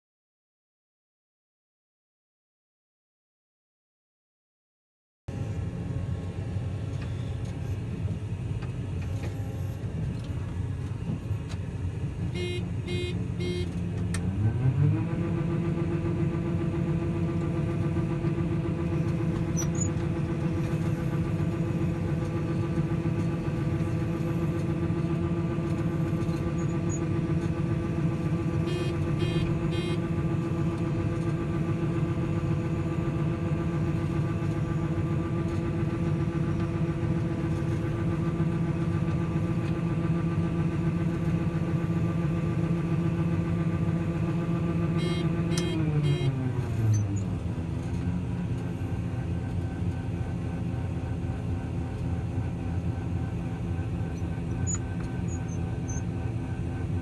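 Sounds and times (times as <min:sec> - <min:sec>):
combine harvester running: 0:05.3 - 0:57.0
quick electronic beeps: 0:28.7 - 0:30.0.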